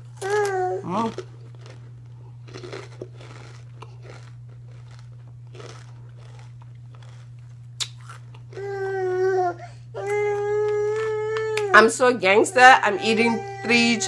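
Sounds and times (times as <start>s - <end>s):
chewing crunchy chips: 0.0s - 9.0s, 10.3s - 11.6s.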